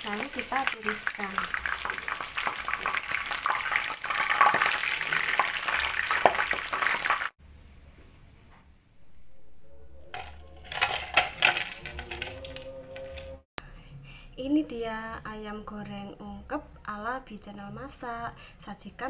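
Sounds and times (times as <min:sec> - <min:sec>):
chicken sizzling in hot oil: 0:00.0 - 0:07.4
wire strainer scraping wok: 0:10.1 - 0:13.4.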